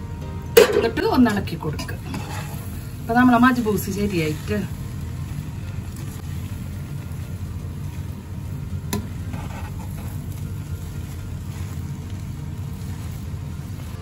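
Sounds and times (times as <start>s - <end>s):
steady low hum: 0.0s - 14.0s
spatula scraping rice in pan: 2.1s - 2.9s, 9.0s - 14.0s.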